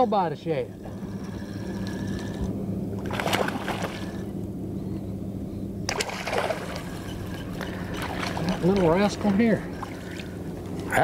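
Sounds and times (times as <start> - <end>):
steady low hum: 0.0 - 11.0
fish splashing at water surface: 3.0 - 4.2, 5.9 - 10.9.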